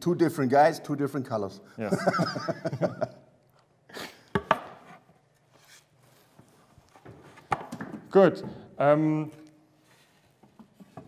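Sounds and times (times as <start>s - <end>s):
wooden boards knocking: 4.4s - 4.8s.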